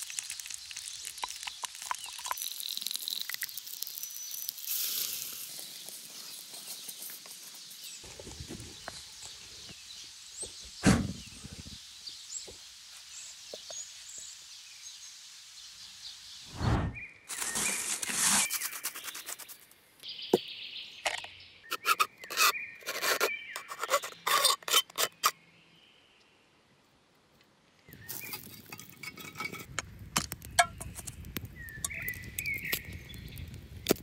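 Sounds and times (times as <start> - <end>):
birds chirping: 5.6 - 14.9, 18.4 - 26.4, 30.3 - 33.8
knife cutting tin can: 21.1 - 25.3.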